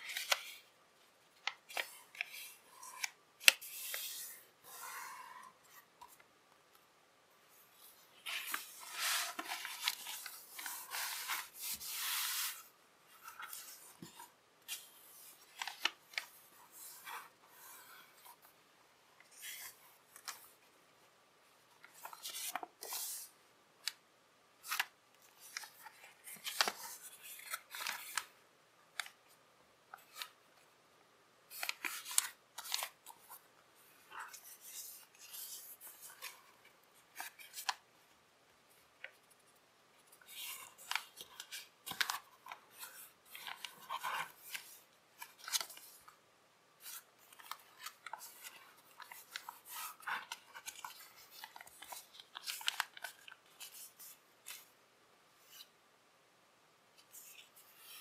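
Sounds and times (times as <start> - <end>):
paper fold snaps: 0.0 - 0.7
paper rustling and crinkling: 0.0 - 0.7, 7.7 - 18.5, 21.8 - 23.3, 24.6 - 29.2, 31.5 - 37.8, 40.0 - 46.1, 46.8 - 54.7.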